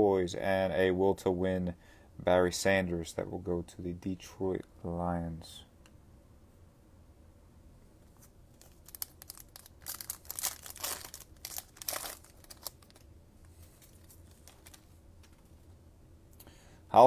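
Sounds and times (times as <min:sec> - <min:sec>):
wrapper tearing and crinkling: 0:08.5 - 0:13.1, 0:13.7 - 0:14.9.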